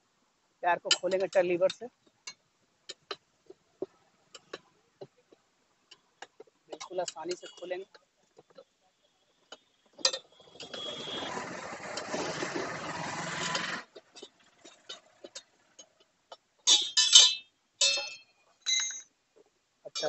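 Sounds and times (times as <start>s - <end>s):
tyre lever scraping rim: 10.4s - 15.5s.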